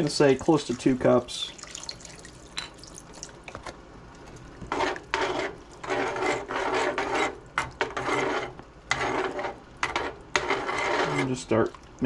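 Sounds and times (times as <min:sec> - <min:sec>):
spoon scraping a skillet: 0:04.6 - 0:11.6.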